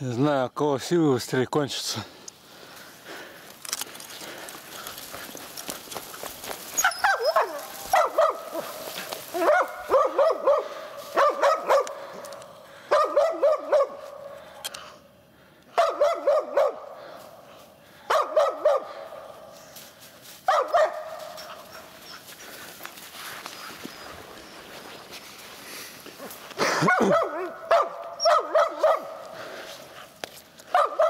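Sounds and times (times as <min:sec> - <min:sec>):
dog barking: 0:06.8 - 0:12.2, 0:12.8 - 0:14.2, 0:15.8 - 0:17.0, 0:18.0 - 0:19.3, 0:20.5 - 0:21.5, 0:26.8 - 0:29.2, 0:30.7 - 0:31.0.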